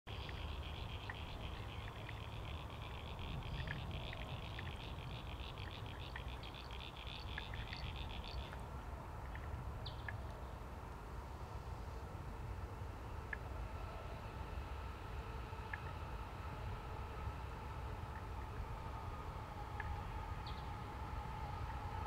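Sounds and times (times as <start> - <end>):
animal pulsing call: 0.1 - 8.6
bird chirps: 0.1 - 8.6
low rumble: 0.1 - 22.0.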